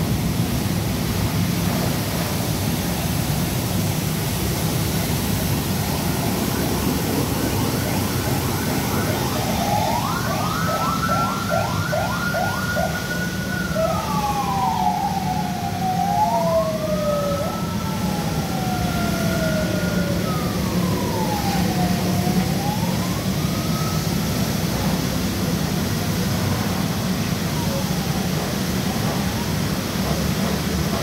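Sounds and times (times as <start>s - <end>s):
emergency vehicle siren: 0.0s - 31.0s.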